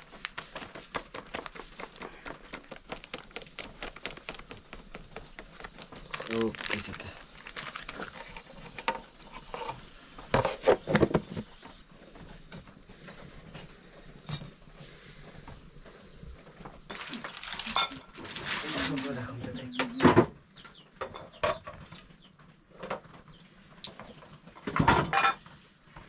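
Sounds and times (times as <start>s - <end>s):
steady high-pitched hiss: 0.0s - 26.0s
kitchen utensils and pots clattering: 17.6s - 18.6s, 24.6s - 25.5s.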